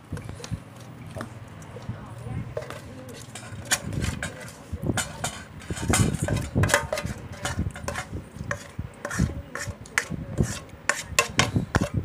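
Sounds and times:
plastic spoon scraping metal pot: 2.5 - 12.0.

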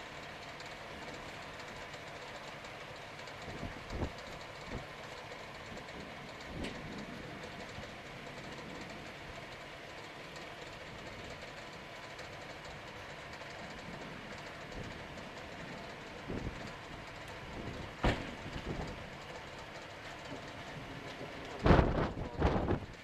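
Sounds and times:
wind rushing across microphone: 21.6 - 23.0.

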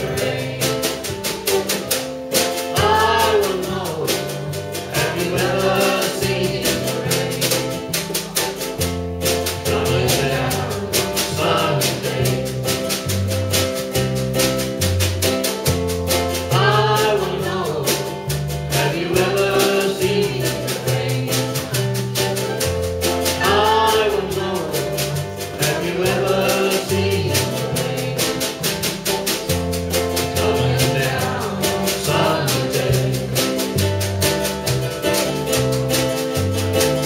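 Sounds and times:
man and woman singing: 0.0 - 1.8, 2.4 - 8.6, 9.3 - 13.1, 16.3 - 22.2, 23.2 - 33.9
drum steady beat: 0.0 - 37.0
strummed string instruments: 0.0 - 37.0.

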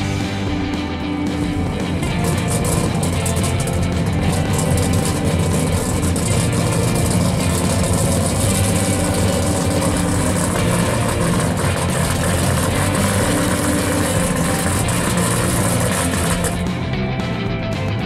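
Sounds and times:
car engine idling: 0.0 - 18.0.

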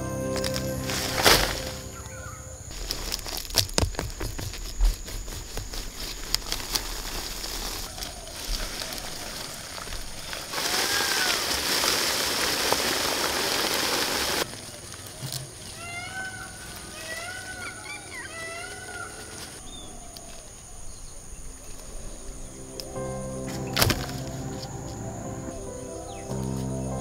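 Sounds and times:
leaves rustling: 0.0 - 27.0
roots snapping and tearing: 0.4 - 1.8, 2.7 - 15.5, 23.6 - 24.4.

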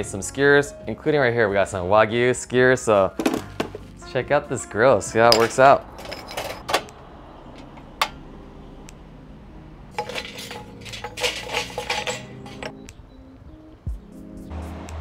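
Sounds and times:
charcoal clinking: 5.3 - 6.7, 9.9 - 12.9.

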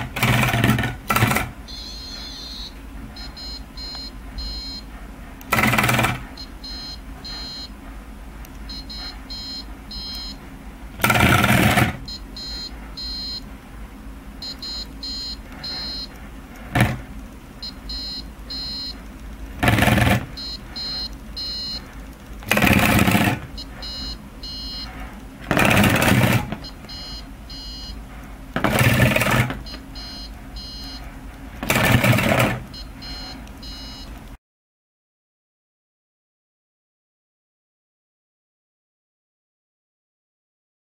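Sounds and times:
vibration motors buzzing and rattling: 0.0 - 33.6
high-pitched electronic beeps: 1.2 - 4.9, 5.6 - 7.7, 8.7 - 10.4, 11.1 - 13.4, 14.4 - 16.1, 17.6 - 19.0, 19.6 - 21.9, 22.5 - 24.9, 26.6 - 28.0, 29.0 - 31.0, 31.8 - 34.1.

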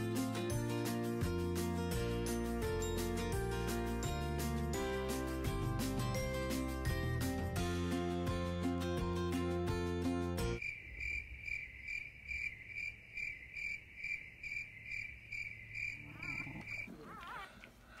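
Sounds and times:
music: 0.0 - 10.6
cricket chirping: 10.6 - 16.9.

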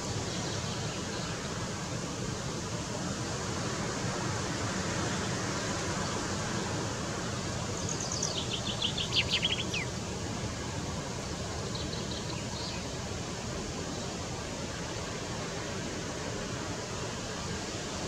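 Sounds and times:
steady hiss: 0.0 - 18.0
finch singing: 7.8 - 9.9.

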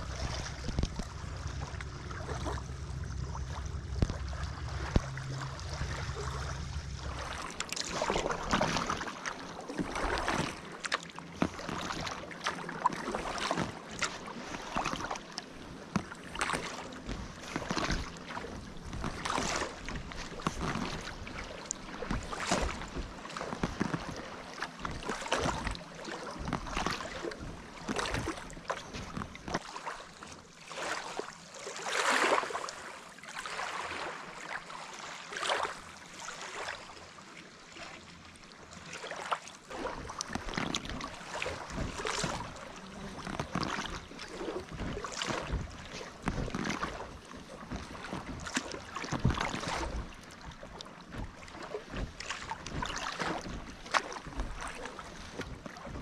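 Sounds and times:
paddle strokes splashing water: 0.0 - 56.0.

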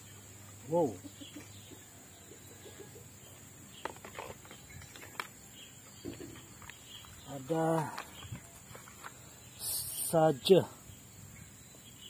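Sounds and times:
faint outdoor chirping: 0.0 - 12.0.

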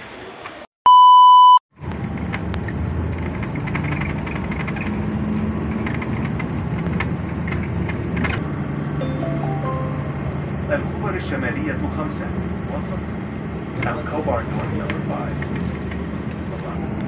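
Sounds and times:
electronic beep: 0.9 - 1.6
road traffic with cars passing: 1.7 - 17.0.

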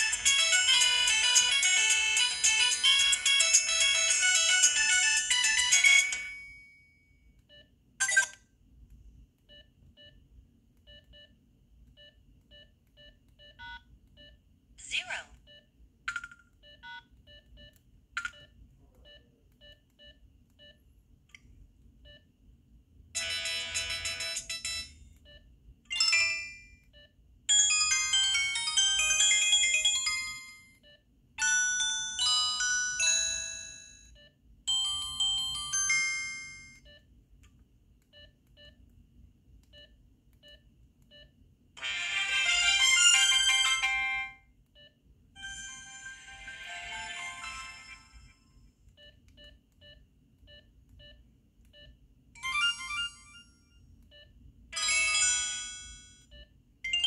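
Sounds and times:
phone ringtone jingles: 52.4 - 53.7.

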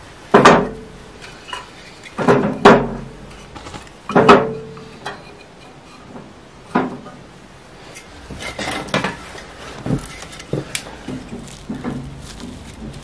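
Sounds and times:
clanks and knocks of hard objects: 0.3 - 0.9, 1.5 - 5.2, 6.1 - 7.2, 8.3 - 13.0.

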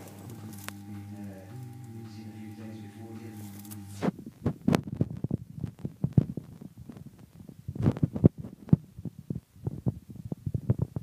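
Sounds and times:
steady tone: 0.0 - 4.2.

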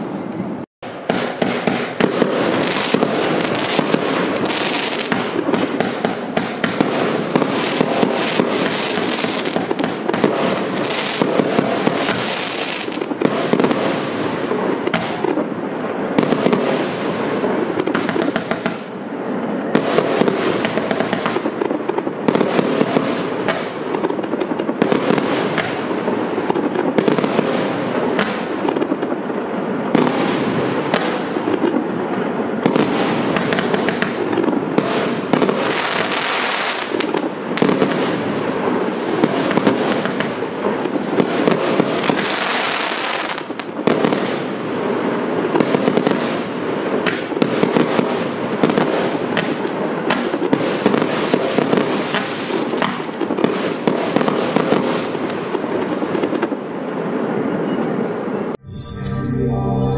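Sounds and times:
fireworks shells bursting: 0.0 - 15.5
fireworks hiss: 0.0 - 24.2, 24.8 - 56.2
fireworks barrage: 0.0 - 59.9.

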